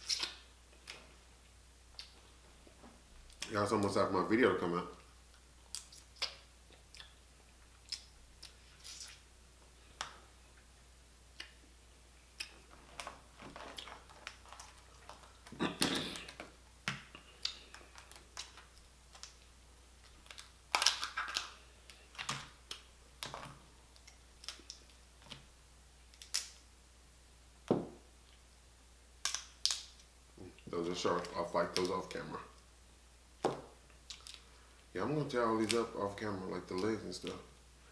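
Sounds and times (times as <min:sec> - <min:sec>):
crab shells cracking: 0:16.2 - 0:25.0, 0:26.1 - 0:26.6, 0:29.2 - 0:30.0.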